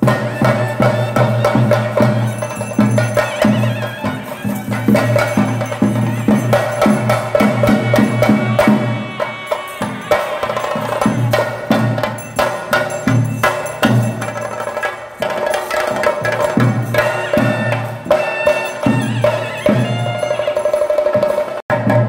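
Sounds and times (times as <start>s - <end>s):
hand cymbals ringing: 0.0s - 21.6s
drums beaten in fast strokes: 0.0s - 22.0s.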